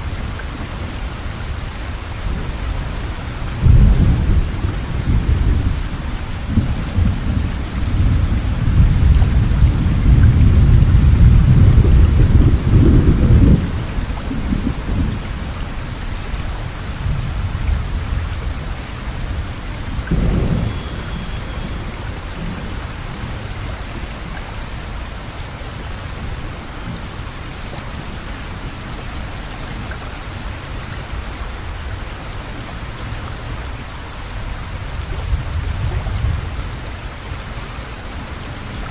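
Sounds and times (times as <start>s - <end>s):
steady rain: 0.0s - 38.9s
rolling thunder: 2.3s - 15.4s, 17.0s - 23.4s.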